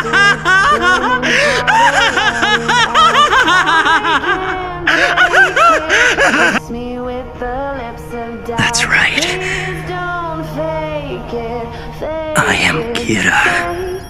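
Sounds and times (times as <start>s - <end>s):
man laughing manically: 0.0s - 6.6s
low music drone: 0.0s - 14.0s.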